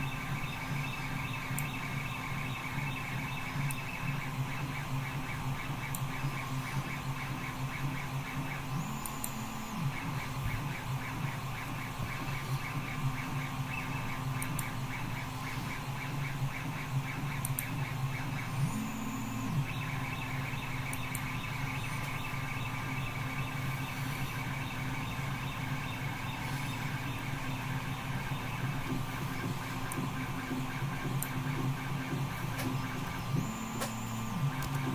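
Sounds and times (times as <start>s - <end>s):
machine hum with pulsing whir: 0.0s - 34.9s
faint clicks: 17.4s - 17.7s.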